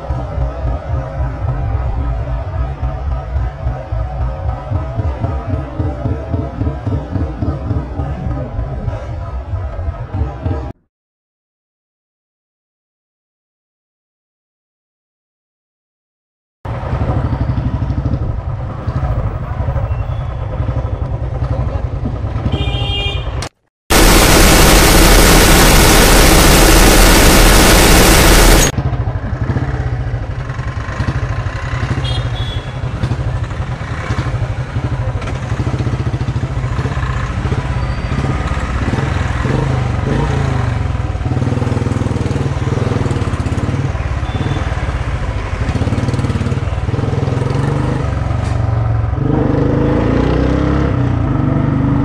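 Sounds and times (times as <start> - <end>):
machine-gun fire: 23.9 - 28.7
motorcycle engine revving: 23.9 - 32.1.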